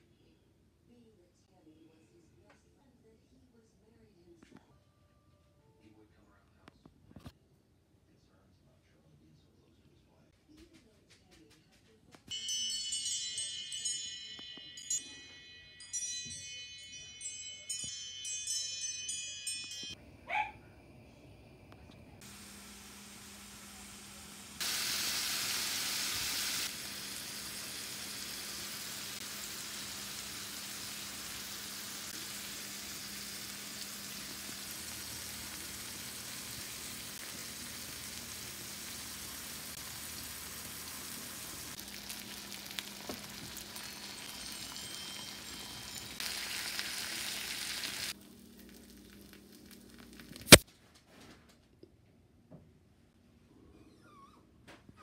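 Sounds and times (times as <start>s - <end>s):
chiming music: 12.3s - 20.0s, 43.5s - 46.4s
steaks sizzling on a grill pan: 22.3s - 48.2s.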